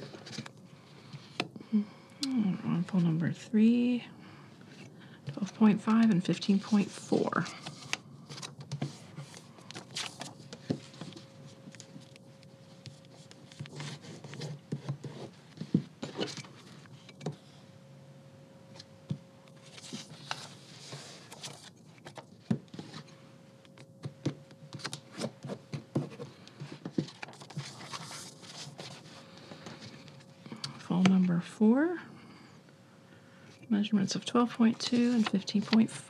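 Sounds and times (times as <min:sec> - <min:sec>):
paper rustling and sliding: 0:06.5 - 0:12.2, 0:19.6 - 0:23.1, 0:24.7 - 0:30.1, 0:34.9 - 0:35.9.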